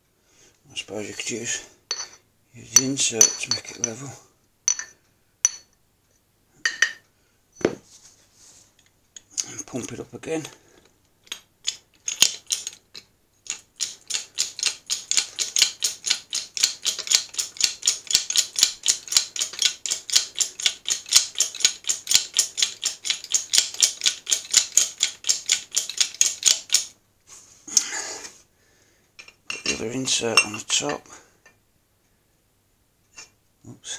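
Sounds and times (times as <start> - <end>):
hydraulic jack pump clicking: 13.8 - 26.8.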